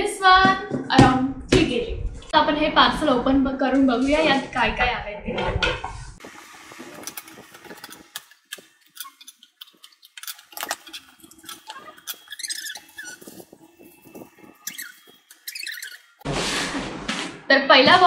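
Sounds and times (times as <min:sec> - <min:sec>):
short squeaks: 0:09.0 - 0:16.2.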